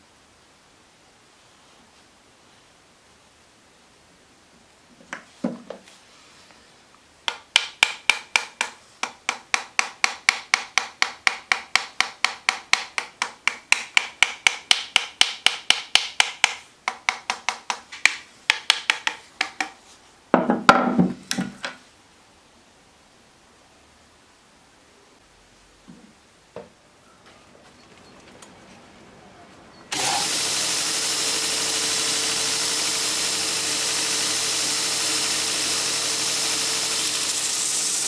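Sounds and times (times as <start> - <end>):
small hammer tapping: 7.3 - 19.8.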